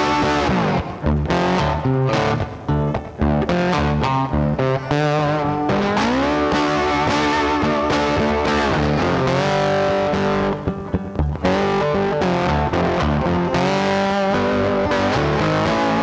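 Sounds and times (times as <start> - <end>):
distorted guitar music: 0.0 - 16.0.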